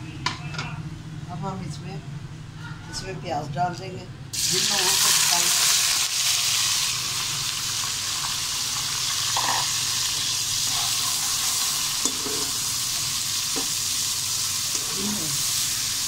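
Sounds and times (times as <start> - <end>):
onions sizzling in a wok: 4.4 - 16.0
metal spoon scraping a pan: 9.4 - 9.8, 10.6 - 12.6.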